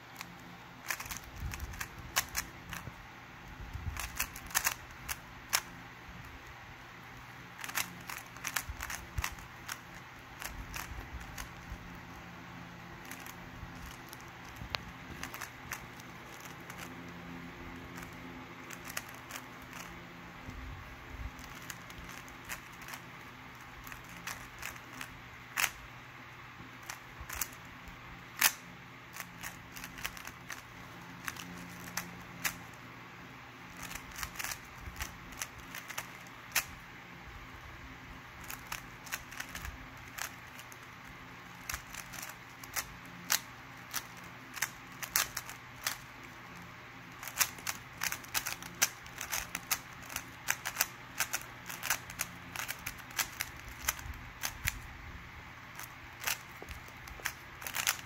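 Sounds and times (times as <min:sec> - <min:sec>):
puzzle cube clicking as turned: 0:00.1 - 0:05.8, 0:07.6 - 0:12.3, 0:12.9 - 0:20.6, 0:21.2 - 0:25.9, 0:26.8 - 0:32.8, 0:33.7 - 0:36.8, 0:38.4 - 0:54.9, 0:55.7 - 0:58.0.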